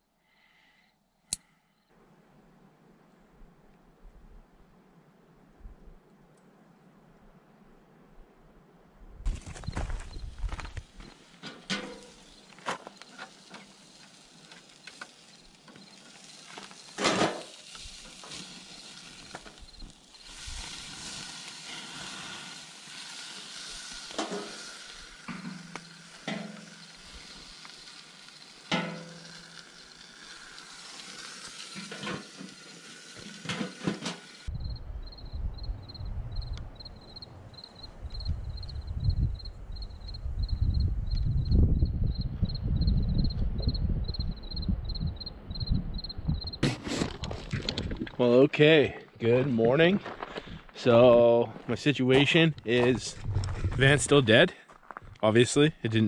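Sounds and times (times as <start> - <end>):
cricket chirping: 1.4 - 1.9, 9.3 - 20.9, 24.2 - 31.2, 34.5 - 46.6
steady hiss: 9.3 - 34.6
low wind rumble: 34.5 - 46.6, 52.9 - 54.2.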